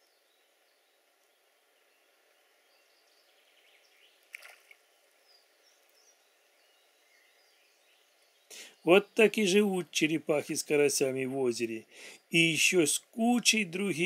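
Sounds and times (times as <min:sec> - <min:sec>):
pond ambience: 0:00.0 - 0:14.0
fish splashing water: 0:04.3 - 0:04.8.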